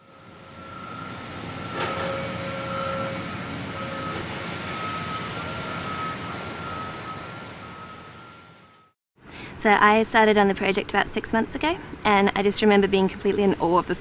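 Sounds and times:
mechanical noise with high whine: 0:00.0 - 0:09.0.

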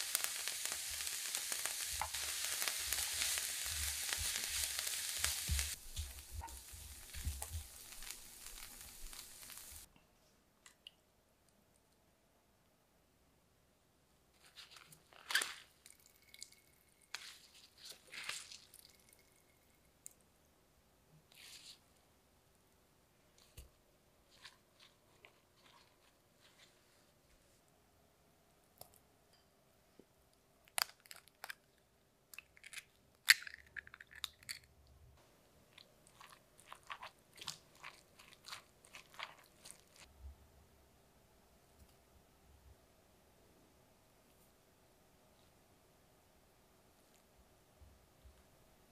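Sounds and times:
spatula stirring crunchy cabbage: 0:00.0 - 0:09.9, 0:17.1 - 0:18.9, 0:24.2 - 0:27.0, 0:35.7 - 0:40.1
wet squishing crunch of cabbage: 0:35.7 - 0:40.1.

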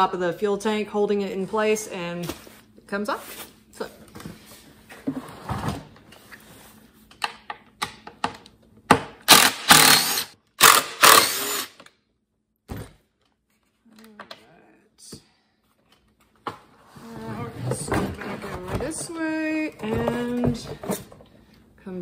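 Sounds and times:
impact driver running: 0:09.2 - 0:11.8.

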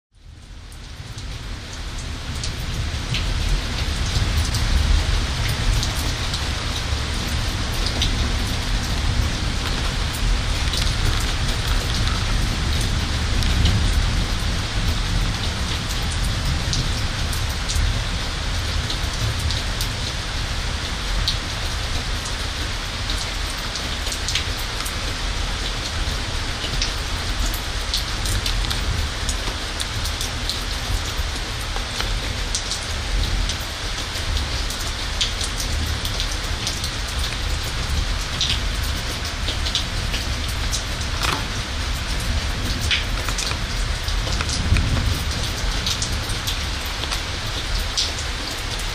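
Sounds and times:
close raindrops ticking: 0:00.1 - 0:48.9
rain falling: 0:00.1 - 0:48.9.

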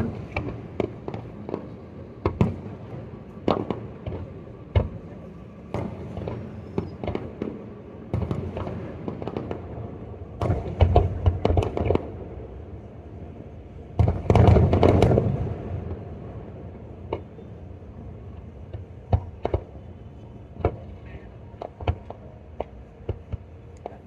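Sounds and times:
fireworks bangs: 0:00.0 - 0:12.2, 0:13.9 - 0:16.3, 0:18.6 - 0:19.8.

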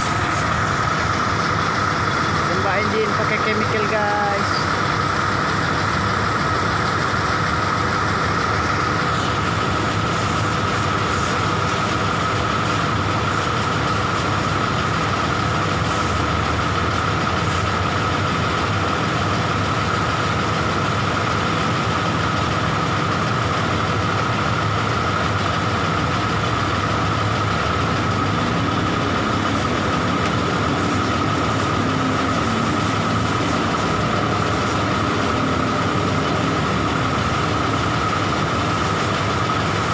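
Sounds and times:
diesel engine idling: 0:00.0 - 0:39.9
steady high whine: 0:00.0 - 0:39.9.

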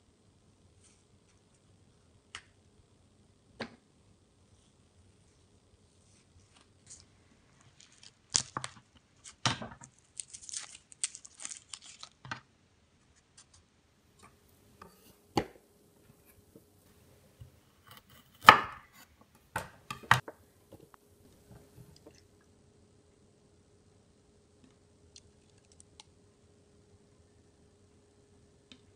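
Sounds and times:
knife scraping cutting board: 0:14.2 - 0:22.1.

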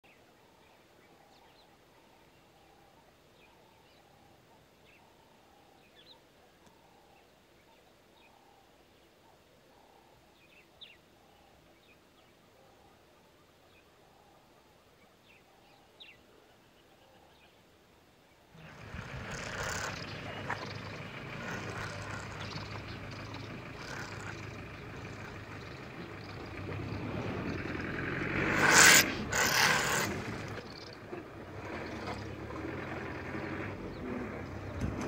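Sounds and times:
vehicle engine running: 0:18.6 - 0:35.0.

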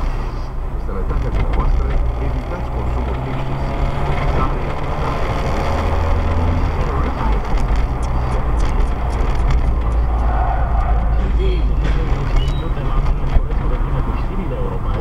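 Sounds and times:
car engine and tyre rumble: 0:00.0 - 0:15.0.

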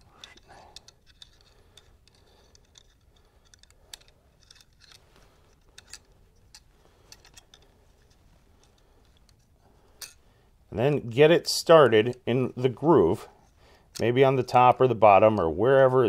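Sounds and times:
light metal clicks and ticks: 0:00.0 - 0:10.2.

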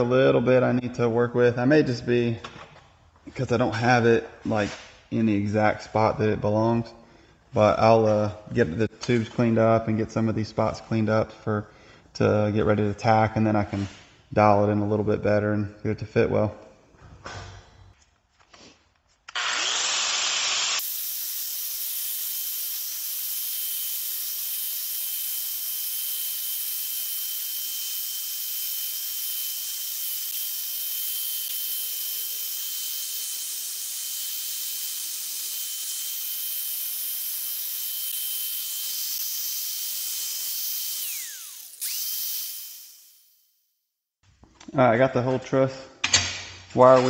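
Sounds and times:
angle grinder grinding steel: 0:19.3 - 0:43.5.

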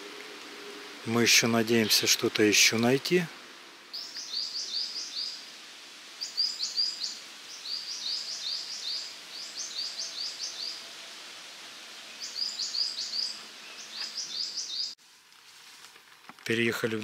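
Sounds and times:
songbird singing high falling notes: 0:03.9 - 0:05.4, 0:06.2 - 0:10.8, 0:12.1 - 0:15.0.

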